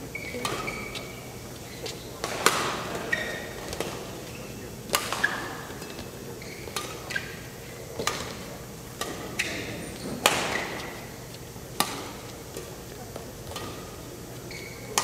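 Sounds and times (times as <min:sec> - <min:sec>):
shoes squeaking on court: 0:00.0 - 0:08.5, 0:09.2 - 0:15.0
racket striking shuttlecock: 0:02.2 - 0:04.1, 0:04.9 - 0:06.1, 0:08.0 - 0:12.8, 0:13.5 - 0:14.0.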